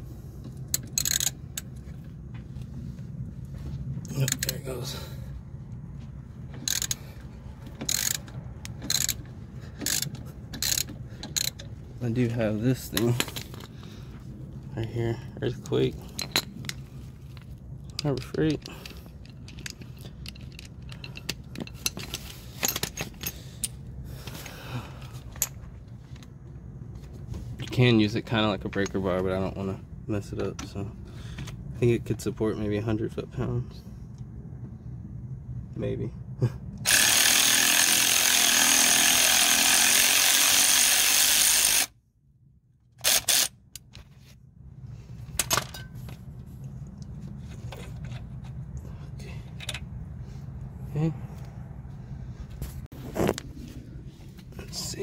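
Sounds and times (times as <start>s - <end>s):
metal tools clinking: 0.7s - 1.8s, 4.1s - 5.1s, 6.6s - 7.1s, 7.7s - 13.8s, 15.6s - 24.5s, 45.3s - 46.4s.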